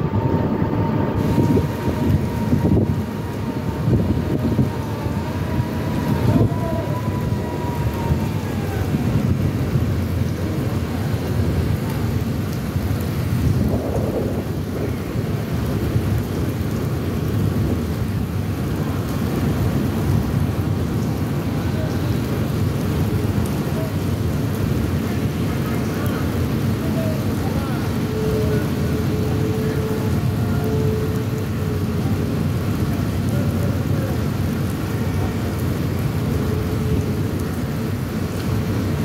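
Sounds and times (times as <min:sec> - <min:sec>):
thunder: 0:00.0 - 0:20.7
rain: 0:00.0 - 0:39.0
wind: 0:00.0 - 0:39.0.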